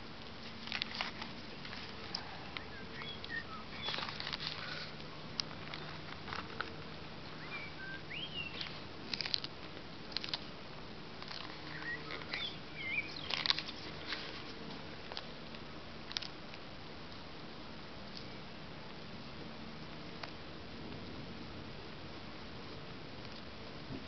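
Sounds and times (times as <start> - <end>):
tortoise crunching lettuce: 0.3 - 16.7
birds chirping: 2.0 - 4.9, 7.2 - 8.8, 11.4 - 14.2.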